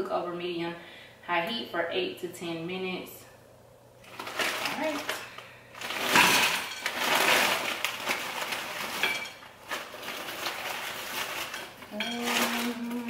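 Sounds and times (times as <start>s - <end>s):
pan and utensils clattering: 4.1s - 13.0s.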